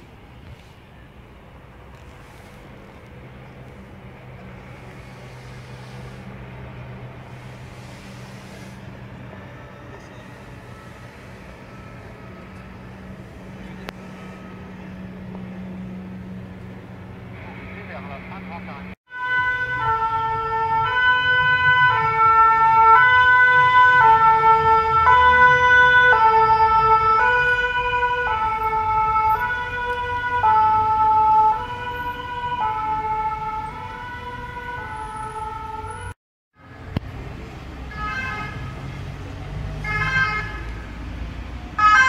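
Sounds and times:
low engine rumble: 0.0s - 19.0s
street traffic noise: 0.0s - 42.0s
two-tone ambulance siren: 4.0s - 16.6s, 17.7s - 36.9s, 37.8s - 42.0s.

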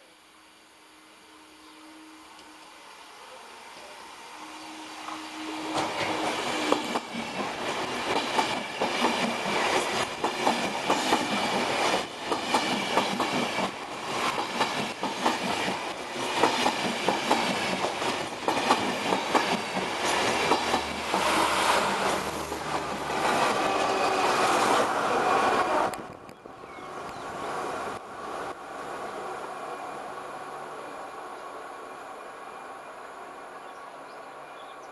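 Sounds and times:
train wheels clattering: 5.7s - 24.8s.

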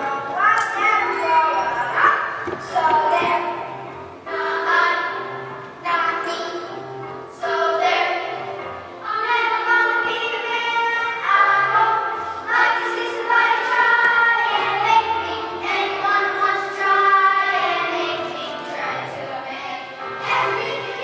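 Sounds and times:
musical accompaniment: 0.0s - 21.0s
boys singing into microphone: 9.0s - 21.0s.

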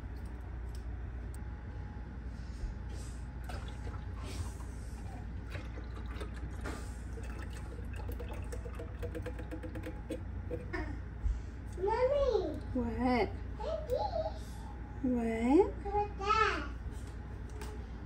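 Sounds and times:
liquid pouring into liquid: 3.4s - 10.7s
can clicking against jar rim: 9.0s - 10.7s.

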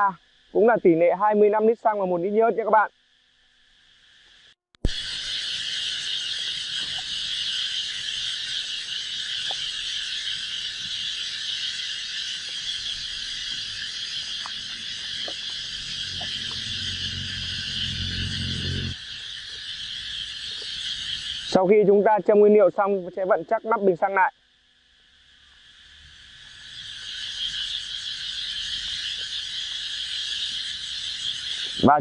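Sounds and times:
high-pitched insect chorus: 0.0s - 32.0s
faint ticks: 9.4s - 9.7s
low rumble: 14.5s - 19.0s.

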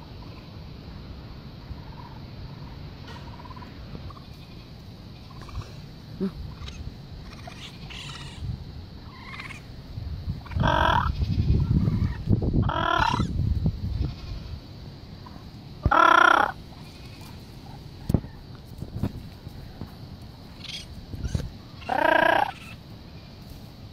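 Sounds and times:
warbling animal calls: 1.7s - 9.7s, 10.3s - 13.4s, 15.2s - 18.4s, 20.6s - 22.8s.

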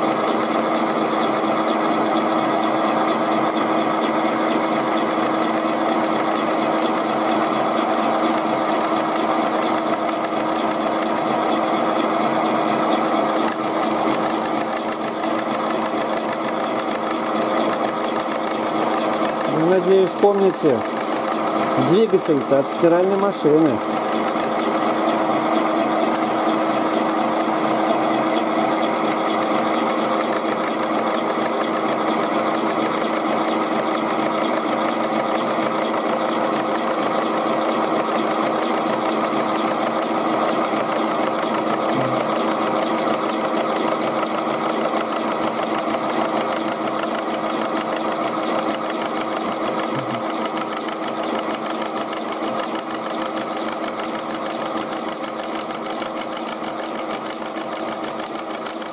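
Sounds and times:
milling machine cutting tin: 0.0s - 58.9s.

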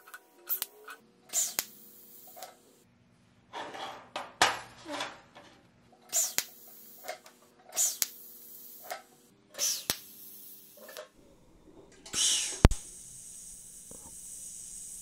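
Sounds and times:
welding arc hissing buzz: 0.0s - 2.9s, 6.0s - 15.0s
welder sharp click: 0.1s - 2.7s, 6.1s - 15.0s
steady low hum: 5.7s - 15.0s.

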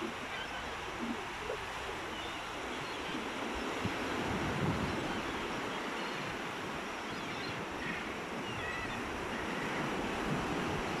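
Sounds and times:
faint gull calls: 0.0s - 3.2s, 7.1s - 10.0s
ocean surf on sandy beach: 0.0s - 11.0s.

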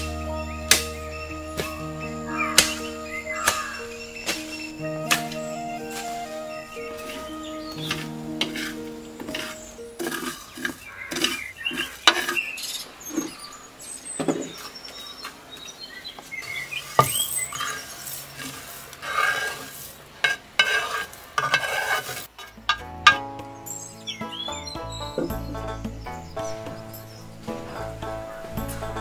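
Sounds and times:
seeds rattling: 0.0s - 12.4s
spatula scraping clay pan: 7.0s - 12.6s, 16.9s - 23.2s.

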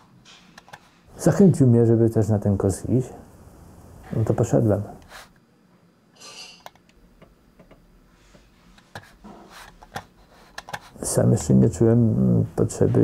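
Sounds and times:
computer mouse clicks: 0.6s - 0.9s, 6.6s - 7.0s, 8.8s - 11.5s
breathy hiss: 2.8s - 5.4s.

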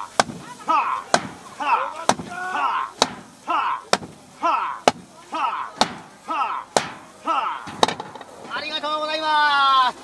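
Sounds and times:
person shouting rhythmically: 0.6s - 7.7s
wok clanking: 3.0s - 4.2s, 5.8s - 8.3s.

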